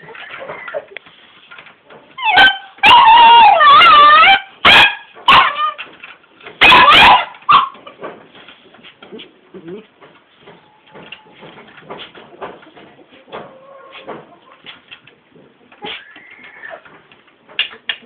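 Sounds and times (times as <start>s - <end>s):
puppy barking and yelping: 2.2s - 6.0s, 6.6s - 8.0s.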